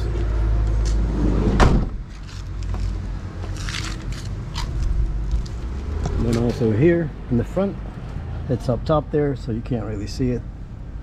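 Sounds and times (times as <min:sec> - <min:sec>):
van sliding door slamming shut: 0:01.1 - 0:02.1.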